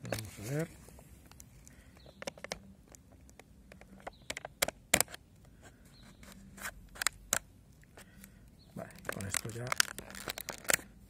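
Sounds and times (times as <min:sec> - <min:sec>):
plastic packaging clicking and crackling: 0:01.3 - 0:05.2, 0:08.2 - 0:11.0.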